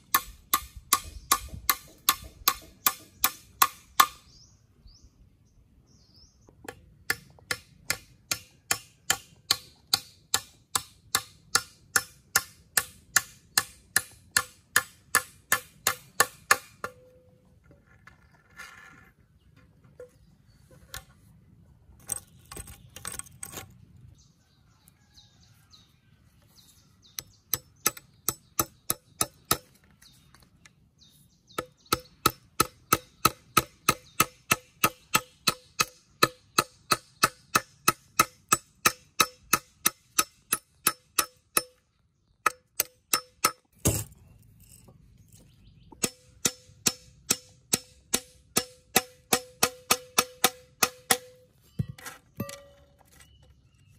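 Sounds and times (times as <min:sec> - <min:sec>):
hammer striking nails into metal: 0:00.0 - 0:04.2, 0:07.1 - 0:17.1, 0:31.6 - 0:41.8, 0:42.4 - 0:44.1, 0:46.0 - 0:52.8.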